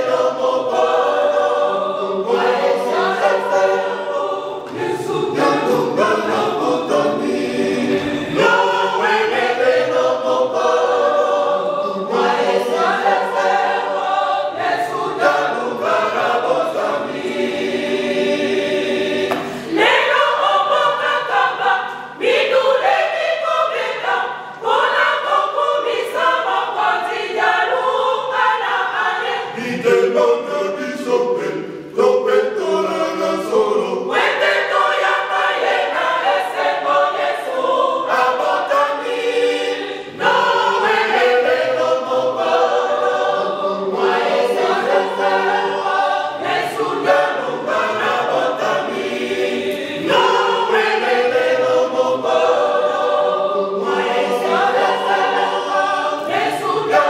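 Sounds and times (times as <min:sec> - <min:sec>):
choir singing hymn unaccompanied: 0:00.0 - 0:57.0.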